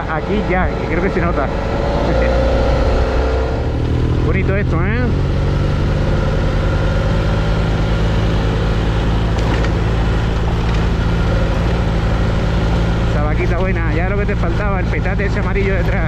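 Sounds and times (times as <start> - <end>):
wind rush: 0.0 - 4.3
motorcycle engine running: 0.0 - 16.0
road noise: 0.0 - 16.0.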